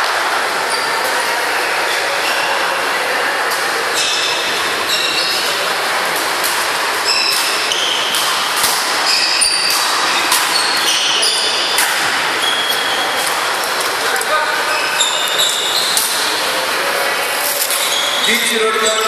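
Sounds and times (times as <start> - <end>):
shoes squeaking on floor: 3.9 - 5.6, 7.0 - 8.4, 9.0 - 13.5, 14.3 - 16.4, 17.6 - 19.0
racket hitting shuttlecock: 7.3 - 10.6.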